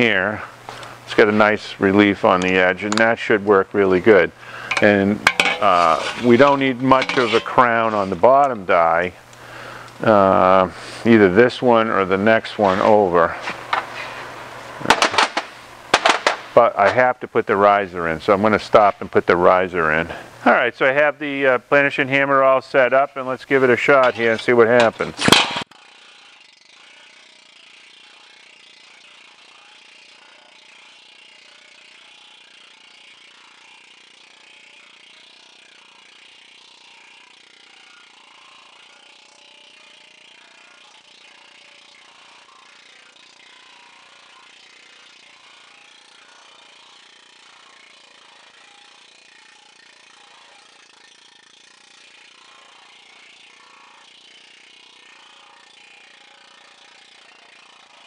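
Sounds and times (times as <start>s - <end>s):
planishing hammer on sheet metal: 4.7s - 8.2s.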